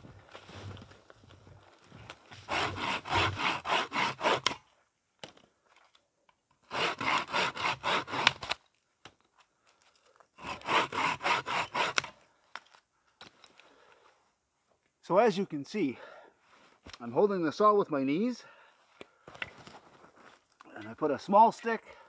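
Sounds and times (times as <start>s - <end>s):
hand saw cutting sticks: 2.4s - 4.6s, 6.6s - 8.6s, 10.4s - 12.2s.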